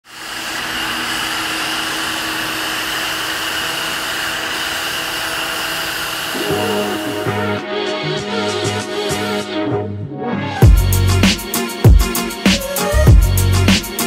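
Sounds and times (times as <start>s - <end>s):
blower motor whirring: 0.0s - 7.6s
music with bass line: 6.4s - 14.0s.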